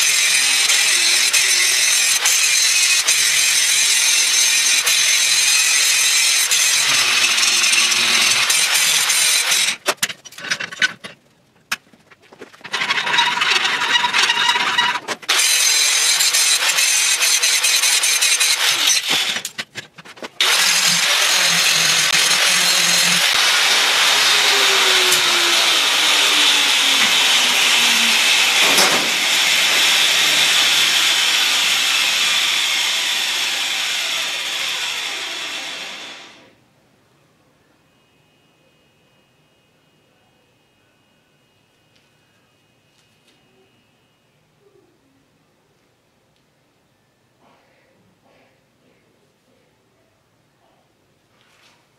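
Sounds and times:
angle grinder grinding steel: 0.0 - 10.9, 12.5 - 36.4.

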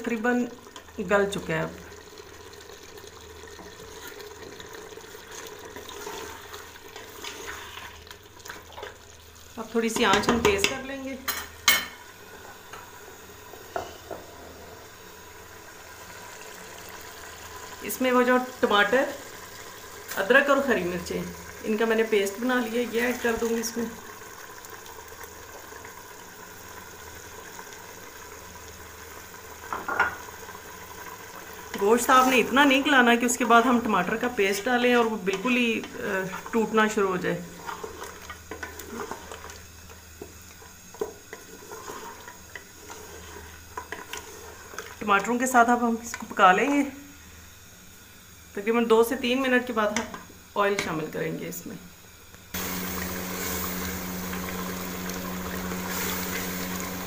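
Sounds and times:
cooking hiss: 0.0 - 57.0
meat sizzling in a pot: 0.0 - 57.0
wooden spoon scraping a pot: 5.3 - 8.9, 31.7 - 32.8, 34.9 - 39.6, 40.2 - 45.0.

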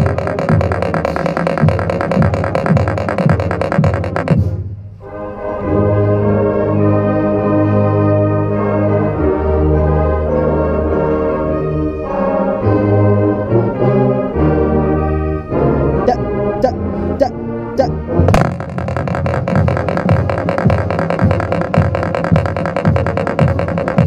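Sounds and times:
sousaphone bass line: 0.0 - 4.5, 16.1 - 24.0
marching band brass chords: 0.0 - 7.8, 18.1 - 24.0.

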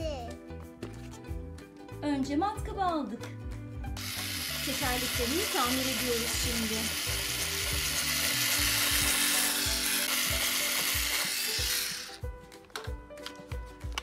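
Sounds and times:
background music with steady beat: 0.0 - 14.0
electric drill whirring: 4.0 - 12.3.

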